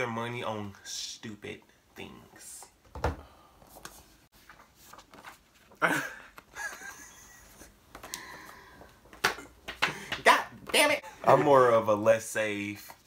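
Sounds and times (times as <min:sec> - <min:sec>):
men laughing loudly: 0:05.8 - 0:07.8.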